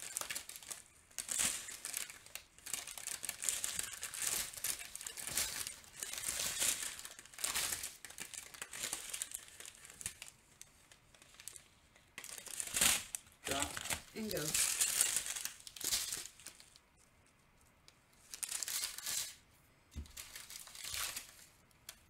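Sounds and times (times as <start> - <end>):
plastic packets crinkling: 0.0 - 17.0, 18.2 - 19.4, 20.0 - 22.0.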